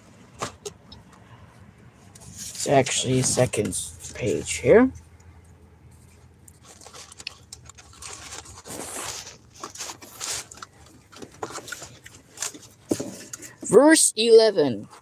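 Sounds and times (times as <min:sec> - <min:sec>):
thin pages rustling: 0:06.0 - 0:13.5.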